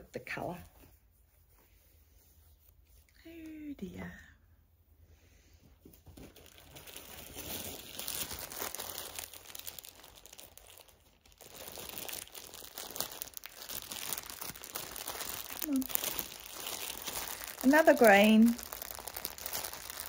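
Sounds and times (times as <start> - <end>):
plastic packaging crinkling: 6.0 - 20.0.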